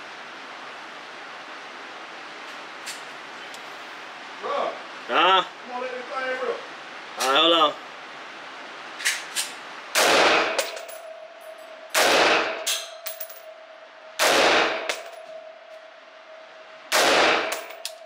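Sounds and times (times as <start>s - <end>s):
rifle shots echoing indoors: 9.9s - 11.2s, 11.9s - 13.4s, 14.2s - 15.2s, 16.9s - 18.0s.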